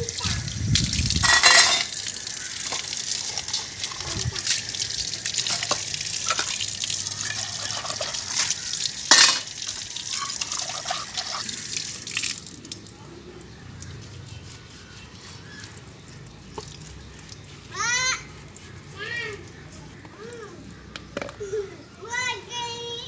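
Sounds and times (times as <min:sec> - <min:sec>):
tap water splashing on concrete: 0:00.0 - 0:12.9, 0:16.5 - 0:21.6
metal dish clank: 0:01.2 - 0:01.9, 0:09.1 - 0:09.5.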